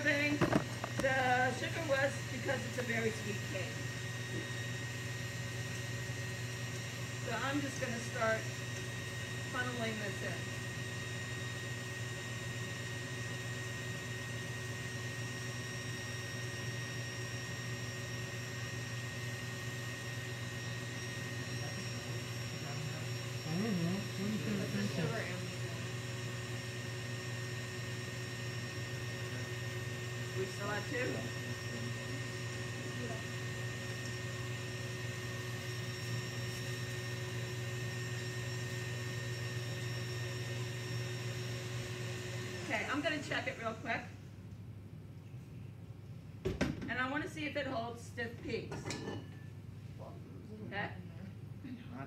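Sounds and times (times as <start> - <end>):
stand mixer motor humming: 0.0 - 44.2
person speaking: 21.5 - 26.0.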